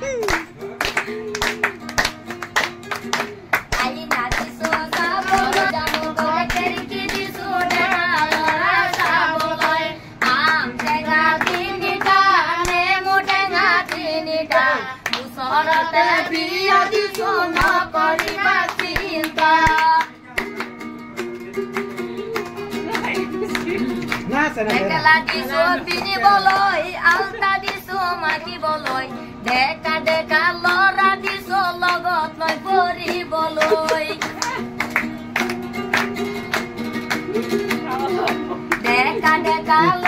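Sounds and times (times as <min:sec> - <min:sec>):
hand-clapping: 0:00.0 - 0:40.0
strummed guitar: 0:00.0 - 0:40.0
woman singing: 0:03.1 - 0:20.6, 0:24.7 - 0:34.7, 0:37.4 - 0:40.0.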